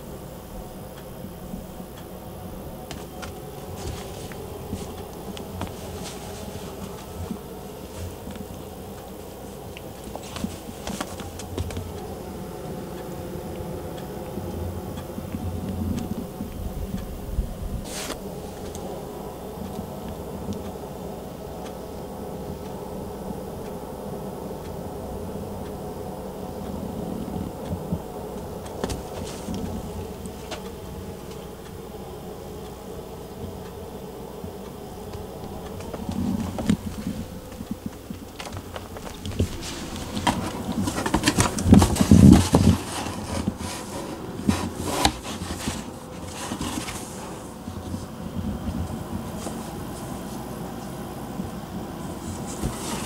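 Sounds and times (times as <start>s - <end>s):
faint ticks: 0.0s - 53.0s
cat scuffing in cardboard box: 2.9s - 11.9s, 17.9s - 18.7s, 28.8s - 30.6s, 35.1s - 47.8s, 52.2s - 53.0s.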